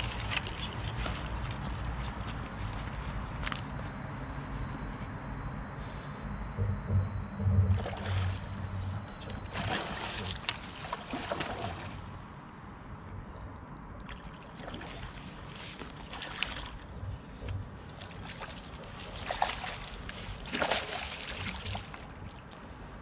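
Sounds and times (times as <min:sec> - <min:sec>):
low steady rumble: 0:00.0 - 0:14.0, 0:16.6 - 0:19.2
water sloshing and splashing: 0:06.6 - 0:12.1, 0:14.0 - 0:22.6.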